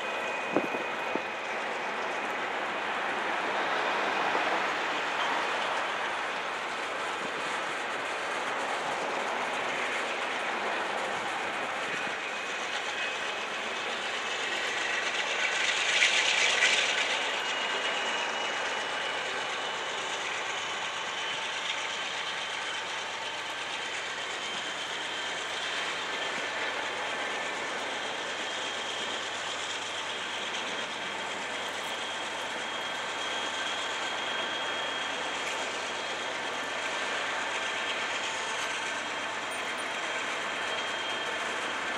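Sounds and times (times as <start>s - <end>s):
train wheels on rail: 0.0s - 41.9s.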